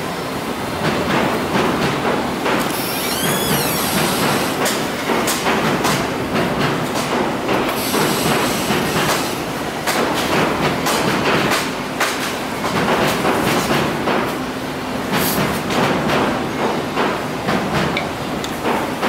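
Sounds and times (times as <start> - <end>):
train rumbling and clattering: 0.4 - 2.7, 3.9 - 19.0
high squeal: 2.7 - 4.5.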